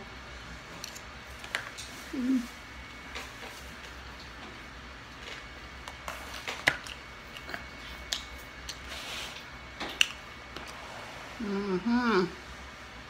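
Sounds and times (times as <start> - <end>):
chewing with mouth clicks: 6.7 - 8.8.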